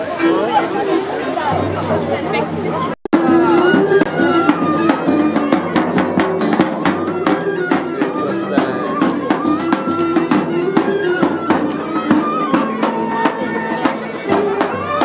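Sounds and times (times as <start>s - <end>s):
bagpipes playing folk tune: 3.2s - 15.0s.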